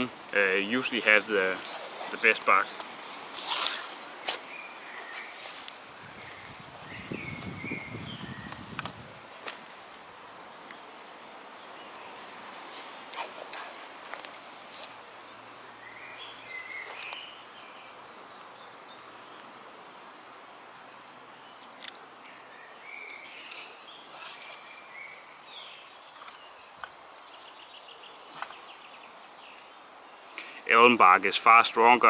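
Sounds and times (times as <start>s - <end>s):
birds singing: 0.0s - 9.1s, 10.4s - 32.0s
faint outdoor hiss: 0.0s - 32.0s
bark peeling off branch: 3.0s - 6.4s.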